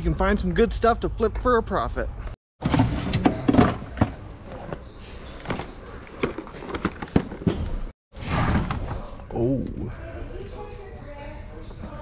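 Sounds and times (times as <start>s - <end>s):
store background noise: 0.0s - 7.9s.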